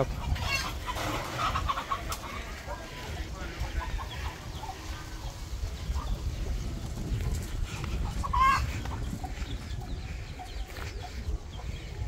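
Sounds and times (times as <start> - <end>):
chickens clucking: 0.0 - 12.0
chicken squawk: 0.2 - 2.4, 8.2 - 8.7.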